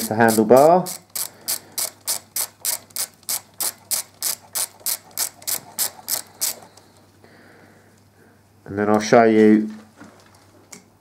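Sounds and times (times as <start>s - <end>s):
hand ratchet clicking: 0.0s - 6.8s.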